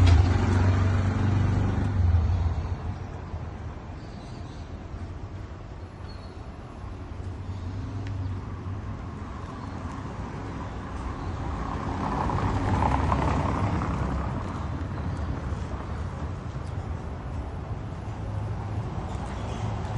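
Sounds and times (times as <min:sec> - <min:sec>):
motor vehicle passing: 0:00.0 - 0:03.2, 0:07.6 - 0:17.4.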